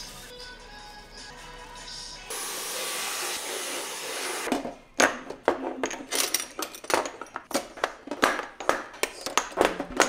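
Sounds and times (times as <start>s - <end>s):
glass jars clinking: 5.0s - 10.0s.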